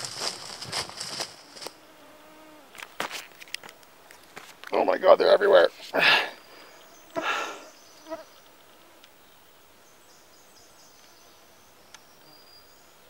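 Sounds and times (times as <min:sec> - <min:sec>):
rustle: 0:00.0 - 0:13.0
mosquitoes whining: 0:06.0 - 0:08.4.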